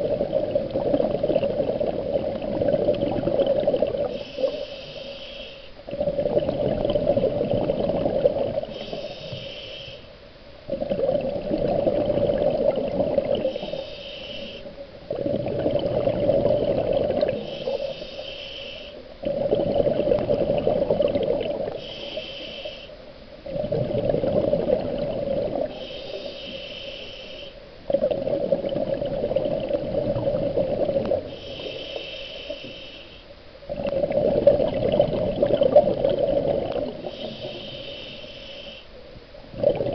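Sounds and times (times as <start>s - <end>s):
exhaled bubbles burbling: 0.0s - 4.2s, 5.9s - 8.8s, 10.7s - 13.8s, 15.0s - 17.8s, 19.2s - 21.8s, 23.4s - 25.9s, 27.9s - 31.3s, 33.7s - 37.4s, 39.5s - 39.9s
regulator inhale hiss: 4.0s - 5.9s, 8.6s - 10.3s, 13.4s - 14.8s, 17.3s - 19.1s, 21.6s - 23.1s, 25.6s - 27.8s, 31.2s - 33.5s, 37.0s - 39.0s.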